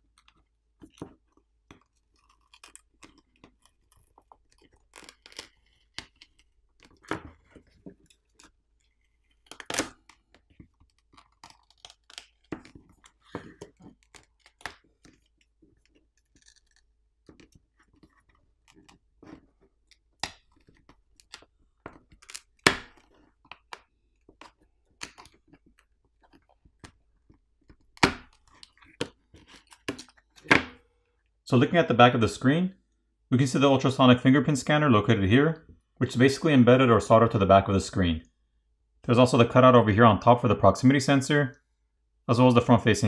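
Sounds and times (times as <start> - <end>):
phone screen peeling crackle: 2.0 - 7.0, 8.0 - 13.2, 13.8 - 19.0.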